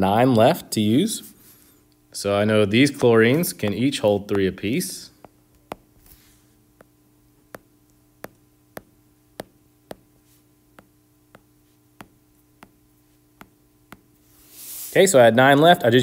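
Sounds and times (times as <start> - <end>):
faint steady hum: 0.0 - 16.0
stylus tapping on glass screen: 7.5 - 10.1, 10.8 - 12.8, 13.4 - 14.1.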